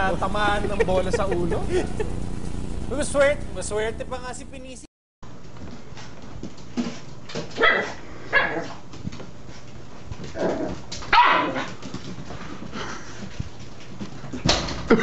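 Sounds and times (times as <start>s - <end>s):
small dog barking: 7.6s - 8.8s, 11.1s - 11.7s.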